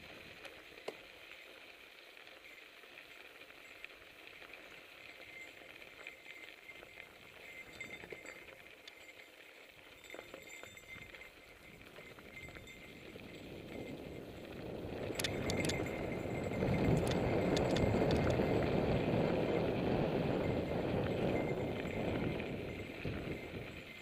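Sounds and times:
bike chain and frame rattling: 0.4 - 24.0
tyres and wind rushing: 11.6 - 24.0.

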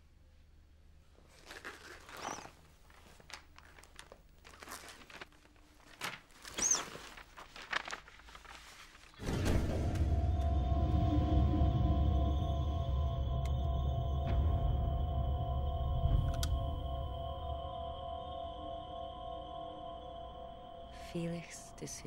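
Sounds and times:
paper envelope rustling: 1.2 - 9.6
music: 9.2 - 22.0.

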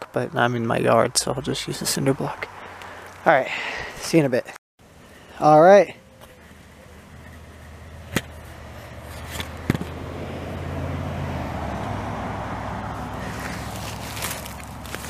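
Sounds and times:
vehicle engine running: 6.0 - 15.0.

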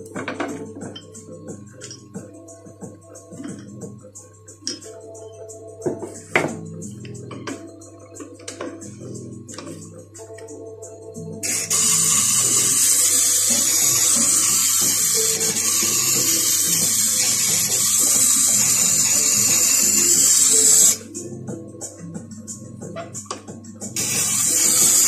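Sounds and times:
background music: 0.0 - 25.0
steel gouge hissing on grindstone: 11.5 - 21.0, 24.0 - 25.0.

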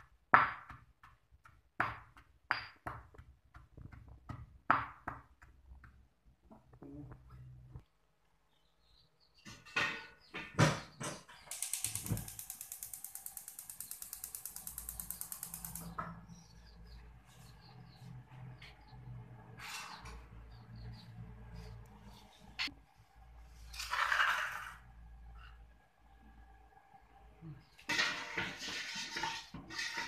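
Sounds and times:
gas igniter clicking rapidly: 11.5 - 16.0.

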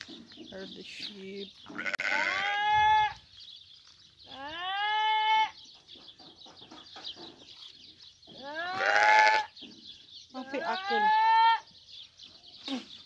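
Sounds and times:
sheep or goat bleating: 1.7 - 3.2, 4.3 - 5.6, 8.4 - 9.6, 10.5 - 11.7.

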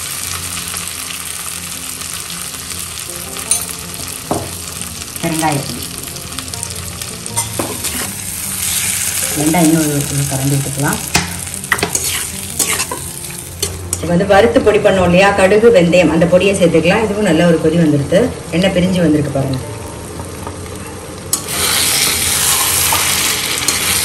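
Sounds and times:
food sizzling in oil: 0.0 - 15.6, 19.6 - 24.0
metal spatula scraping pan: 11.7 - 13.8, 21.4 - 24.0.

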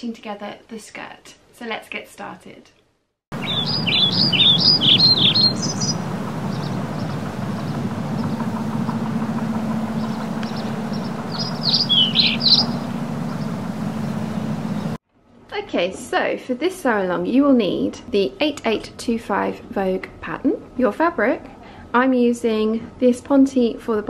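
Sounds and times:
songbird chirping: 3.3 - 15.0
steady low hum: 3.3 - 15.0.

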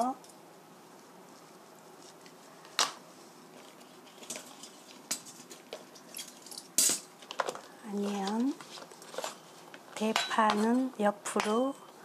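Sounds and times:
knife clinking on ceramic plate: 10.1 - 10.7.

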